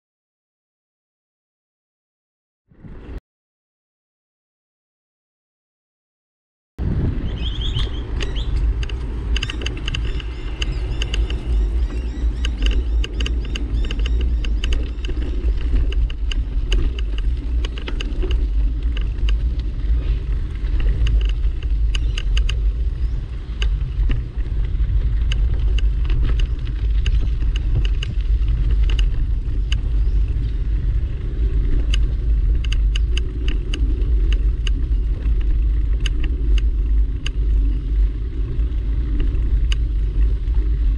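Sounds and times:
handling and wind rumble: 2.7 - 3.2, 6.8 - 40.9
quick clicks and ticks: 8.1 - 19.6, 20.7 - 22.6, 31.7 - 37.7.

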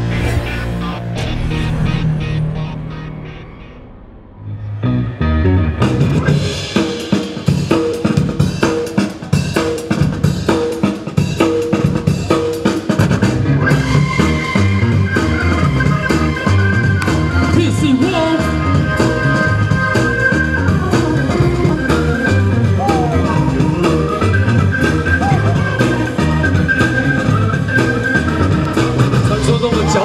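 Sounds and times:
drum kit beat: 6.0 - 30.0.

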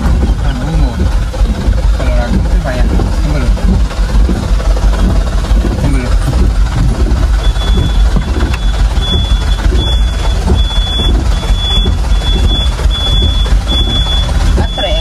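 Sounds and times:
road noise inside cab: 0.0 - 15.0
truck engine rumble: 0.0 - 15.0
high electronic warning beeps: 7.4 - 15.0.

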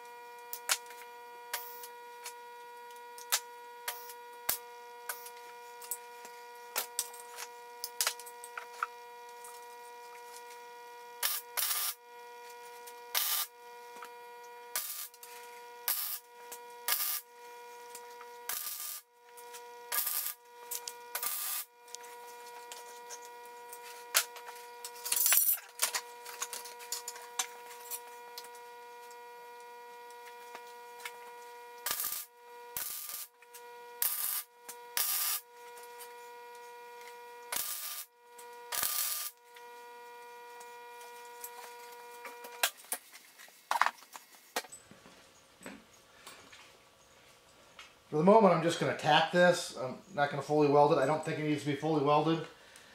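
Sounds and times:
steady welder hum: 0.0 - 52.9
welder crackling bursts: 10.5 - 36.1, 36.9 - 43.1.

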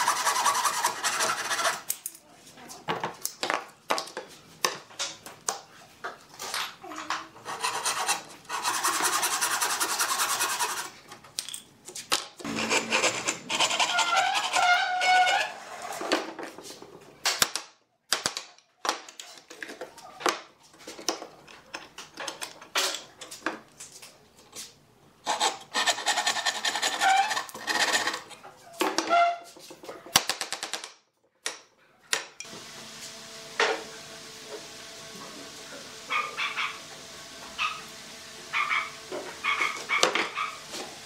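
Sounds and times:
hand saw cutting wood: 0.0 - 1.9, 7.4 - 11.0, 12.4 - 16.1, 25.3 - 28.3.

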